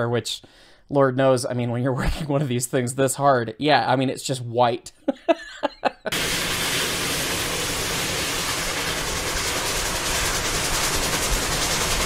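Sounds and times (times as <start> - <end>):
dense rush of noise: 6.1 - 12.0
steam locomotive working hard: 6.1 - 12.0.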